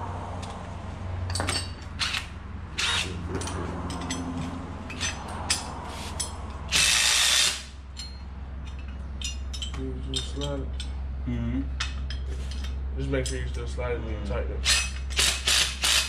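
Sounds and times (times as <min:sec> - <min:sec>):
tools and metal parts clinking: 0:01.3 - 0:06.5, 0:07.9 - 0:11.0, 0:11.8 - 0:13.7.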